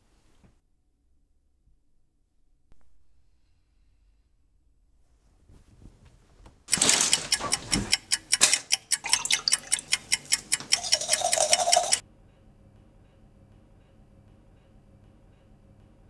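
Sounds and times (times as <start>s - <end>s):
fast clock-like ticking: 6.7s - 12.0s.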